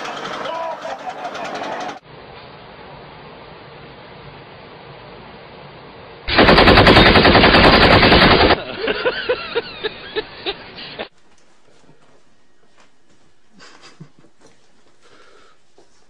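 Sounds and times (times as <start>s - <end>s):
rapid string of bangs: 6.3s - 8.6s.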